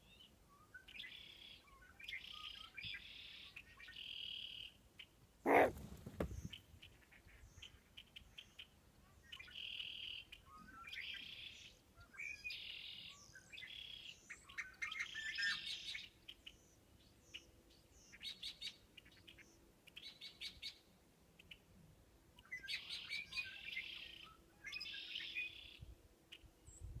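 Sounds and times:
small birds chirping and trilling: 0:00.0 - 0:21.6.

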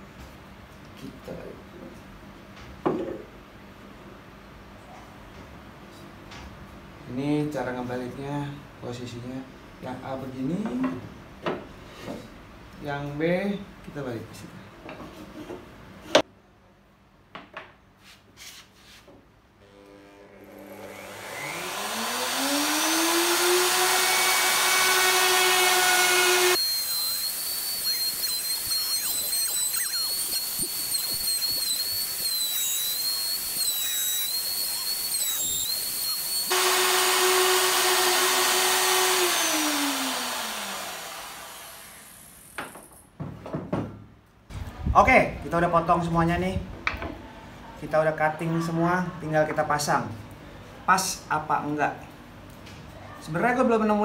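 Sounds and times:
router motor whine: 0:19.6 - 0:42.6.

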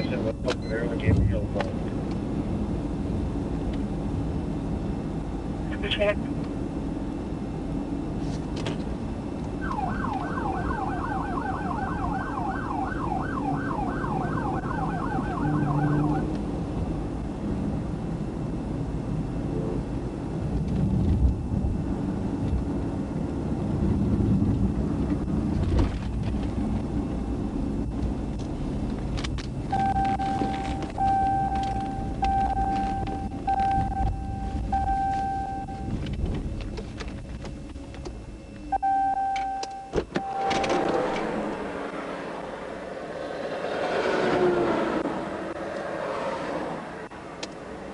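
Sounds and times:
car road and engine noise: 0:00.0 - 0:47.9
short siren tone blasts: 0:09.6 - 0:16.3, 0:29.7 - 0:36.0, 0:38.4 - 0:42.5
police siren yelping: 0:09.6 - 0:16.4, 0:29.7 - 0:36.0, 0:38.6 - 0:41.8.

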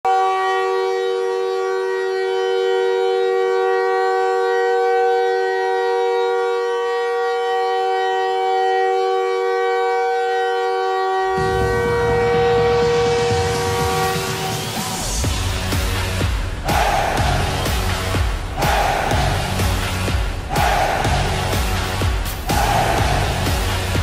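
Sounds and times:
hockey goal horn blast: 0:00.1 - 0:15.4
deep noisy rumble: 0:11.4 - 0:24.0.

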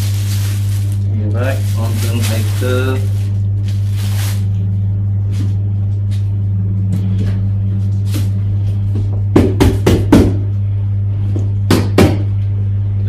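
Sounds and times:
plastic bags rustling: 0:00.0 - 0:05.6
steady low hum: 0:00.0 - 0:13.0.

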